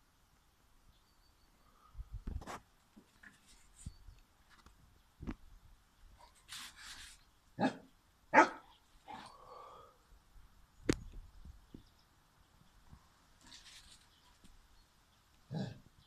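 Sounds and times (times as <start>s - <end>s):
dog barking: 7.6s - 8.7s.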